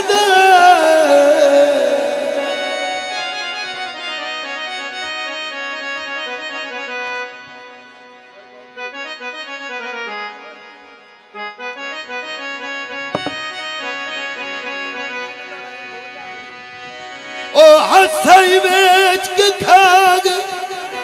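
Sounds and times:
person singing with vibrato: 0.0s - 3.4s, 17.5s - 21.0s
harmonium melody: 0.0s - 21.0s.

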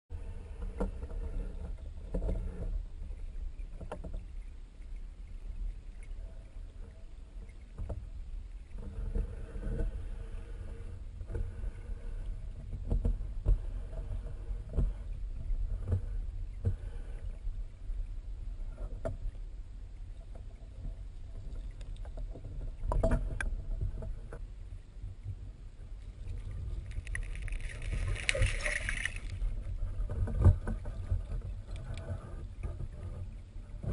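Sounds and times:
underwater river water rumble: 0.1s - 33.9s
hissy water rush: 26.3s - 29.7s.

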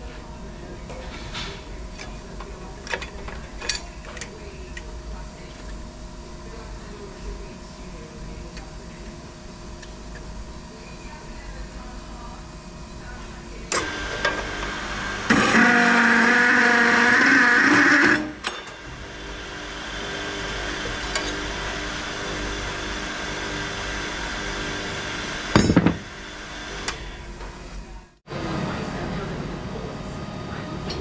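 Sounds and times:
cold saw cutting metal: 13.7s - 27.2s
saw motor running: 13.8s - 27.4s.

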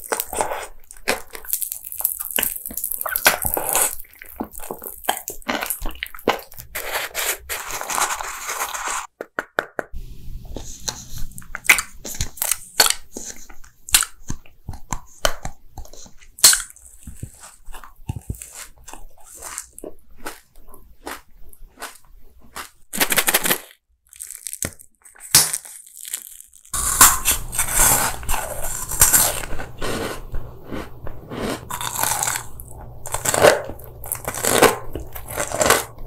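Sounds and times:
crunching snack being chewed: 0.0s - 9.1s, 10.6s - 36.0s
low hum: 26.8s - 36.0s.

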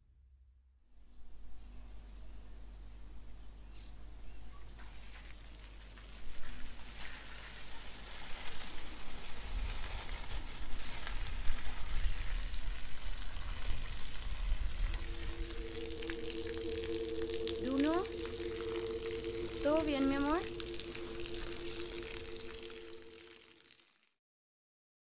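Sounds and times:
crackling rain-like hiss: 1.8s - 24.2s
deep low rumble: 9.0s - 23.4s.

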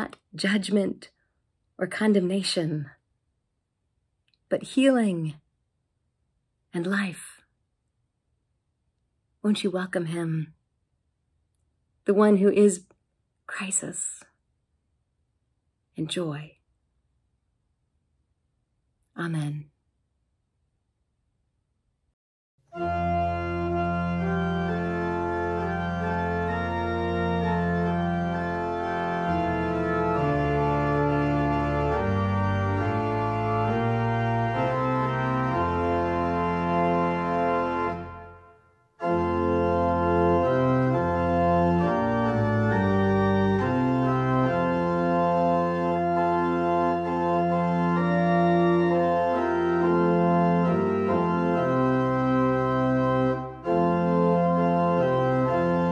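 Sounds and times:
organ playing held chords: 22.7s - 55.9s.

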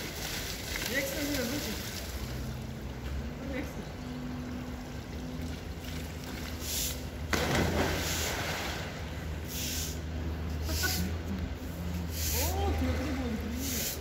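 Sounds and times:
water churning: 4.0s - 10.2s
water splash: 5.4s - 9.8s.

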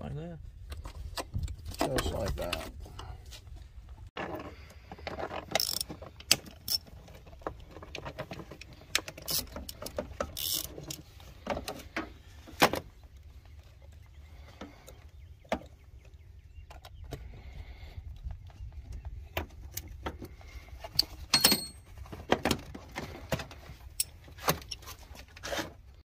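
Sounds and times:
sharp metal knocks: 21.3s - 21.8s.

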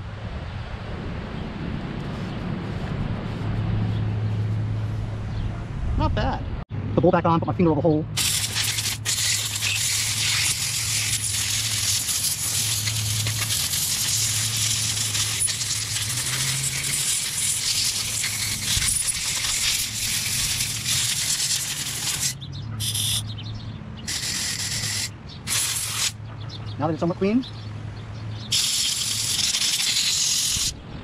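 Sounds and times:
aerosol spray hissing: 8.2s - 23.2s, 24.1s - 26.2s, 28.5s - 30.7s.

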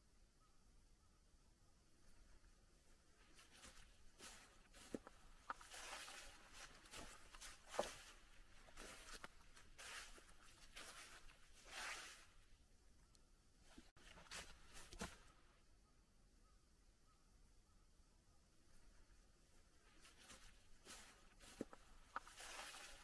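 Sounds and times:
footsteps on stone path: 3.2s - 12.3s, 13.7s - 15.2s, 19.9s - 23.0s.

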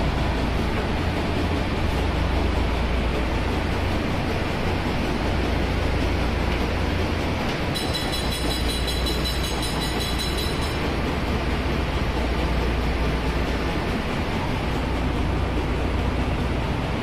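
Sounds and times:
engine room machinery hum: 0.0s - 17.0s.

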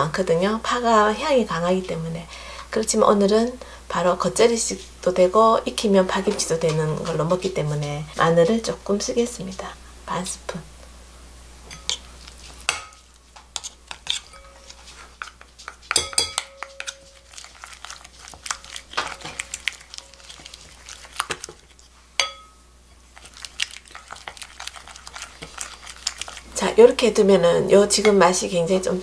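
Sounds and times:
spoons clinking on glass bowl: 11.7s - 12.0s, 14.1s - 17.4s, 22.2s - 22.6s
wooden spoon scraping paste: 13.5s - 16.0s, 16.6s - 22.0s, 22.9s - 28.2s.

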